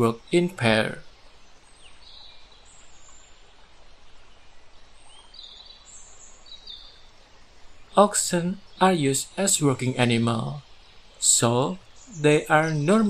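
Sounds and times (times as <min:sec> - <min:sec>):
low steady hiss: 0:00.0 - 0:13.0
high bird chirps: 0:07.8 - 0:13.0.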